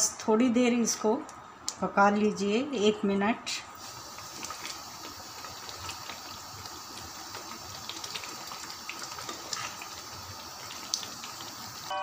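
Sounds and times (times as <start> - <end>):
gravy simmering with bubbles popping: 3.8 - 11.9
wooden spoon stirring: 7.3 - 11.5.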